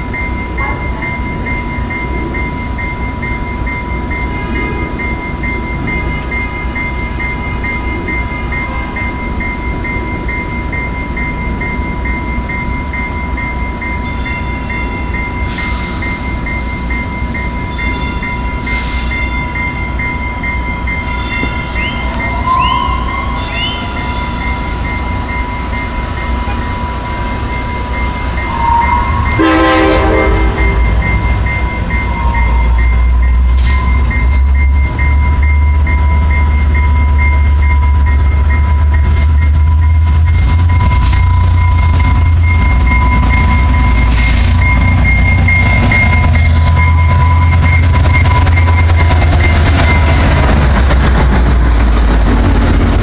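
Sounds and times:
constant high-pitched tone: 0.0s - 53.0s
diesel locomotive idling: 0.0s - 53.0s.

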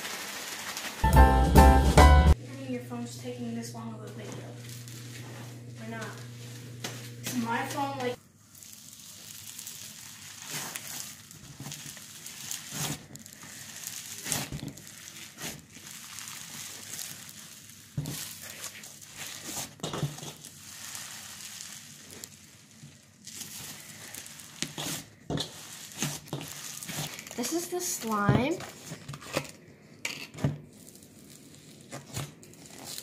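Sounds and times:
slime crackling when kneaded: 7.4s - 29.0s, 30.7s - 33.0s
slime squishes: 8.4s - 29.5s, 30.4s - 33.0s.

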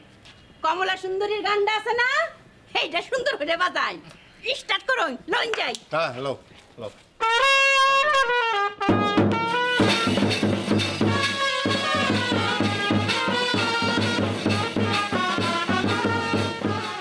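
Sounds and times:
brass band dance tune: 7.2s - 17.0s
bass drum beat: 8.9s - 17.0s.

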